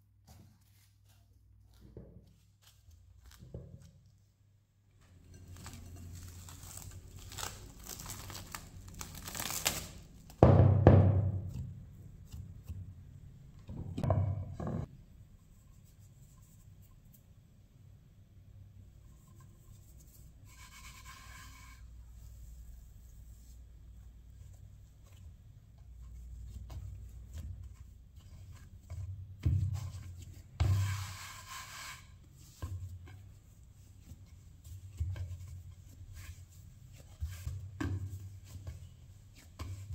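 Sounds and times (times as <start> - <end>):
hands kneading dough: 0.0 - 17.5, 18.8 - 39.9
cling film crinkling: 5.4 - 10.3
dough thumping in bowl: 10.3 - 13.0, 13.6 - 14.9
palm rubbing flour on board: 19.3 - 23.6, 25.9 - 39.9.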